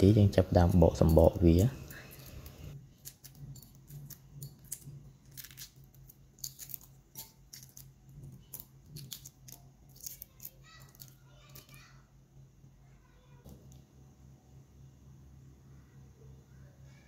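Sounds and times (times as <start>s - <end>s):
eggshell crackling as peeled: 0.6s - 11.9s.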